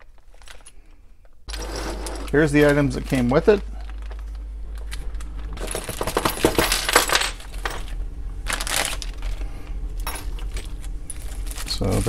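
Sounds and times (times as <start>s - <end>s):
metal parts rattling in plastic bag: 0.0s - 0.8s, 1.5s - 12.0s
plastic bag crinkling: 2.2s - 6.4s, 8.4s - 9.5s, 10.4s - 12.0s.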